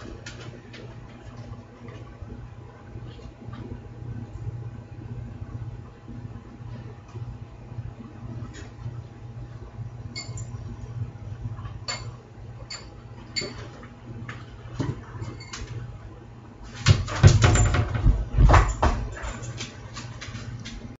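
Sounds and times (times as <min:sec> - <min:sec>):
heavy thumps and clatter: 0:16.8 - 0:19.3.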